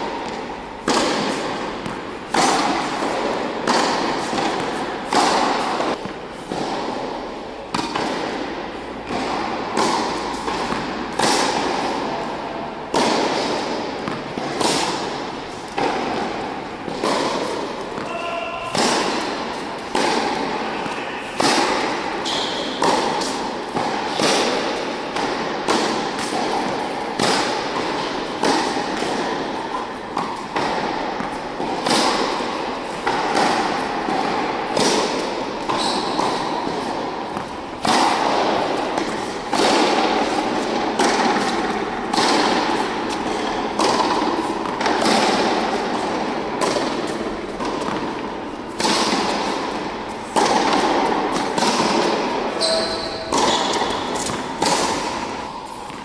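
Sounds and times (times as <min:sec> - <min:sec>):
tennis ball bouncing on hard court: 0:00.0 - 0:56.0
tennis ball hit by racket: 0:00.0 - 0:56.0.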